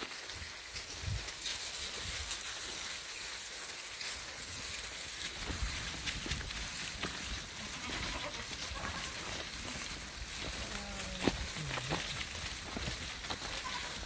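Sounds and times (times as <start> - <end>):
steps on dry leaves and stones: 0.0 - 14.0
goats bleating: 7.4 - 14.0.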